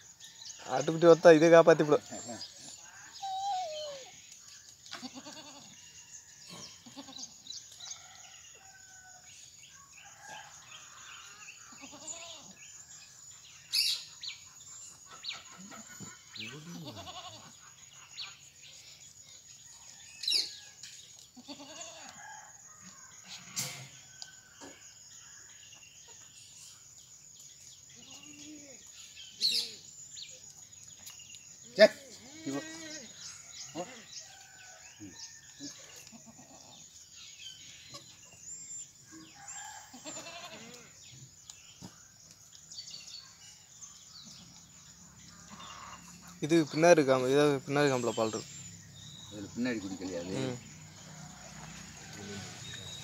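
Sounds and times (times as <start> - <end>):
goats bleating: 5.0 - 5.7, 11.8 - 12.5, 16.5 - 17.5, 21.4 - 22.1, 39.9 - 40.9
chickens calling: 13.8 - 18.4, 45.2 - 46.5.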